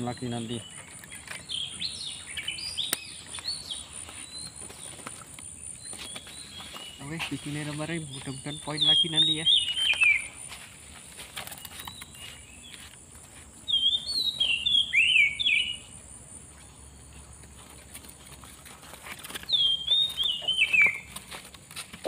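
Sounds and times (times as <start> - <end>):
bird song whistled notes: 0.1 - 5.0, 5.7 - 10.5, 13.7 - 16.0, 19.4 - 21.2.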